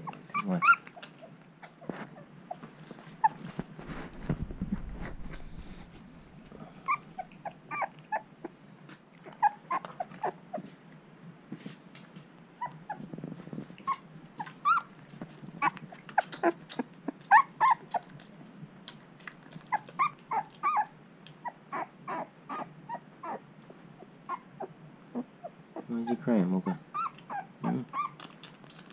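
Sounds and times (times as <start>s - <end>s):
puppy whimpering squeaks: 0.0s - 1.9s, 3.2s - 3.5s, 6.9s - 8.2s, 13.8s - 14.9s, 15.6s - 18.1s, 19.6s - 23.4s, 25.2s - 28.9s.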